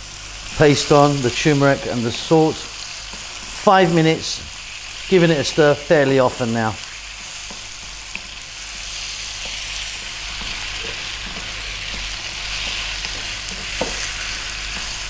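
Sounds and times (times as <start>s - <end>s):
chicken frying in oil: 0.0s - 15.0s
wooden spoon knocking on pan: 10.3s - 14.1s.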